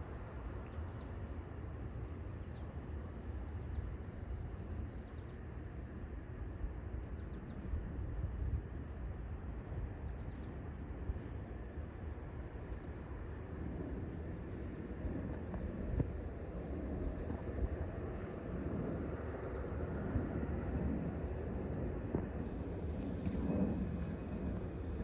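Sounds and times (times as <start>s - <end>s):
distant jet rumble: 9.5s - 25.0s.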